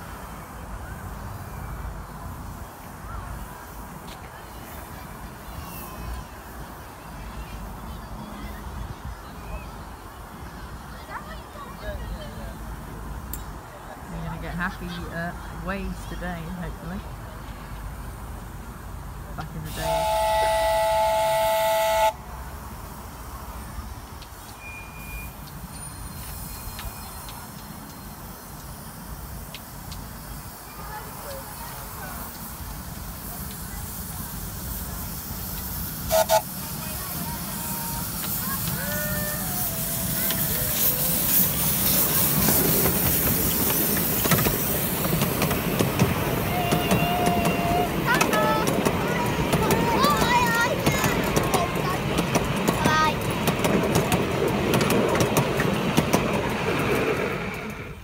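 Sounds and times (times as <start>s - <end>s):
locomotive running quietly: 0.0s - 58.0s
train rumble: 0.0s - 58.0s
steam hiss: 19.6s - 54.4s
steam locomotive whistle: 19.7s - 22.2s, 36.0s - 42.5s, 46.4s - 48.3s
wheels clicking on track: 22.8s - 58.0s.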